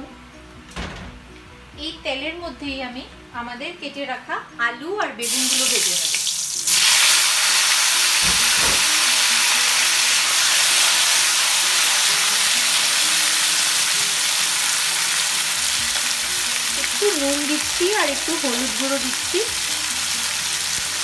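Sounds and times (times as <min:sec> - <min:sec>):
vegetables sizzling in oil: 0:05.2 - 0:21.0.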